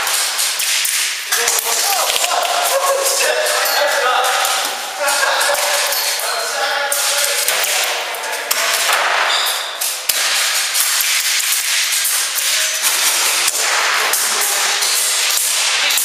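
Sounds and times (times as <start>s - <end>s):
loud noisy background: 0.0s - 16.0s
airsoft guns firing: 6.9s - 16.0s.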